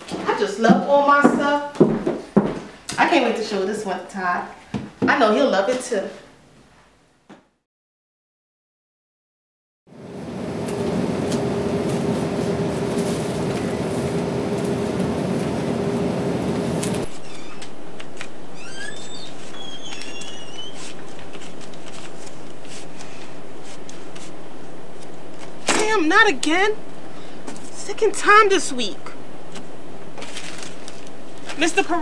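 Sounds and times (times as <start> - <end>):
steady hum: 9.9 - 19.6.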